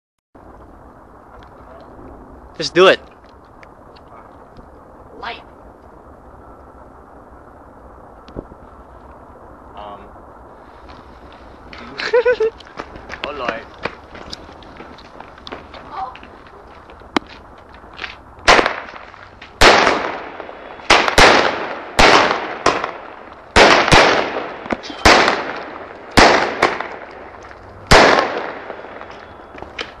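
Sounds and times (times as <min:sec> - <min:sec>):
firework cake bangs: 0:18.4 - 0:30.0.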